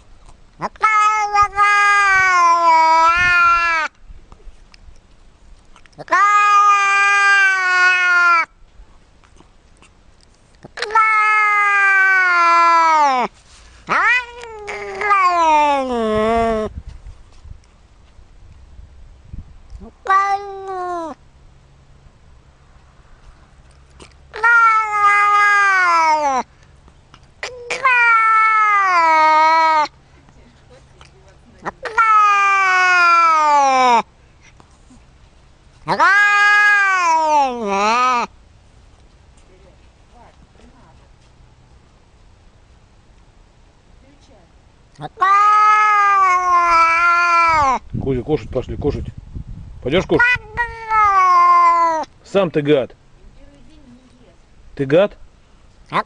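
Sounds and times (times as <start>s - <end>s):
cat yowling: 0.6s - 3.9s, 6.0s - 8.5s, 10.8s - 13.3s, 13.9s - 16.7s, 19.9s - 21.2s, 24.0s - 26.5s, 27.4s - 29.9s, 31.6s - 34.1s, 35.9s - 38.3s, 45.0s - 47.9s, 50.2s - 52.1s.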